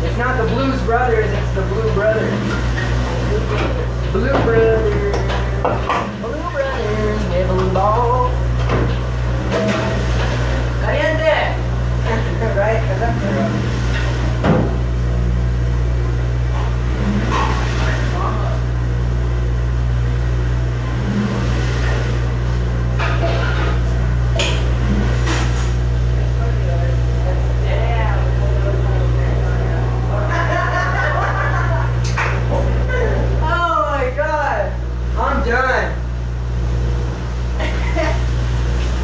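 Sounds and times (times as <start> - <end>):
dishwasher low hum: 0.0 - 39.0.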